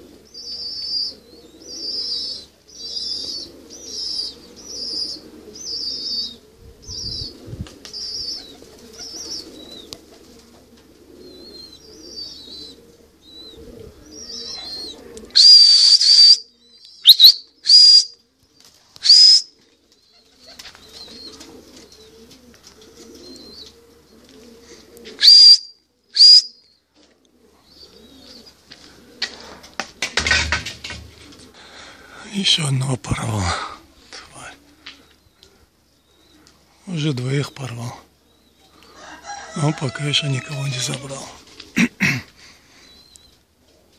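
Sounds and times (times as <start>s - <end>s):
small birds chirping: 0.0s - 29.5s, 31.0s - 43.9s
loud shrill whistles: 15.4s - 16.4s, 17.0s - 18.1s, 19.0s - 19.5s, 25.2s - 26.5s.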